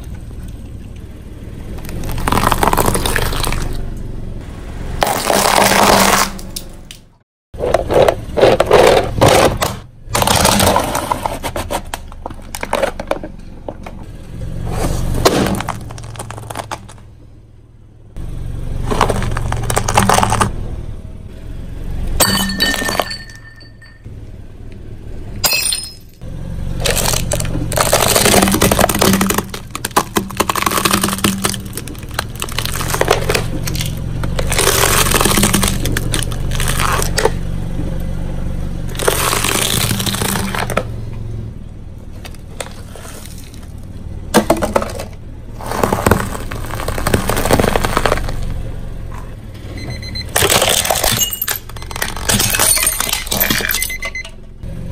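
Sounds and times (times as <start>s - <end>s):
tire crushing dry pasta: 0.0s - 17.5s, 18.2s - 21.0s, 25.6s - 54.9s
low steady hum: 0.0s - 54.9s
plastic jar splitting: 5.0s - 7.0s, 7.6s - 13.9s, 15.2s - 17.0s, 18.9s - 20.5s, 26.8s - 37.4s, 38.9s - 40.9s, 44.3s - 48.5s, 50.4s - 53.8s.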